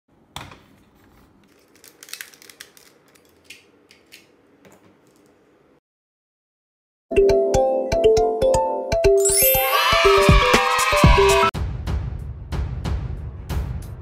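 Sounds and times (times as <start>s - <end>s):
plastic toy parts clicking: 1.5s - 4.3s.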